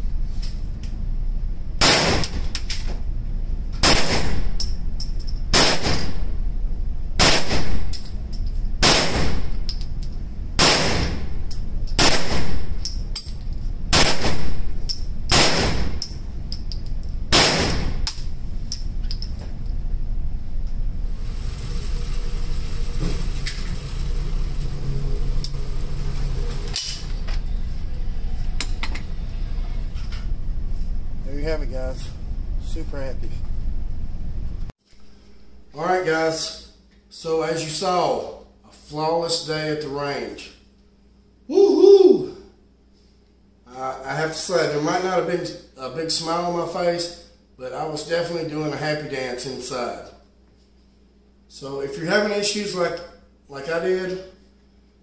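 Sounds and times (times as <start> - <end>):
gunshots: 1.8 - 2.5, 3.8 - 4.6, 5.5 - 6.3, 7.2 - 7.9, 8.8 - 9.5, 10.6 - 11.3, 12.0 - 12.8, 13.9 - 14.7, 15.3 - 16.0, 17.3 - 18.1
target carrier whirring: 3.7 - 34.6.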